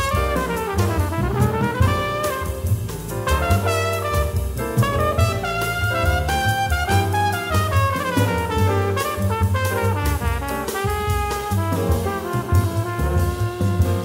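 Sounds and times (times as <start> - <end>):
bass line: 0.0 - 14.0
drum kit with cymbals: 0.0 - 14.0
horn solo: 0.0 - 14.0.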